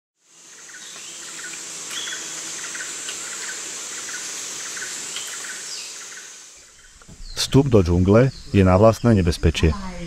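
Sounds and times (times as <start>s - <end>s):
high-pitched insect drone: 0.2s - 7.0s.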